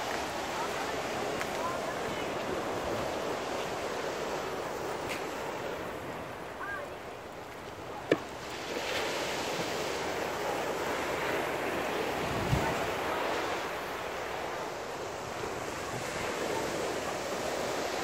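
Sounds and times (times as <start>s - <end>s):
waves washing onto shore: 0.0s - 18.0s
wind on microphone: 10.8s - 13.6s.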